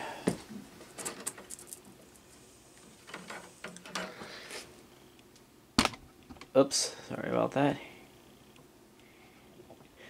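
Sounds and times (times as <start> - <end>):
metal fan clicks and rattles: 1.0 - 1.9, 3.0 - 4.2.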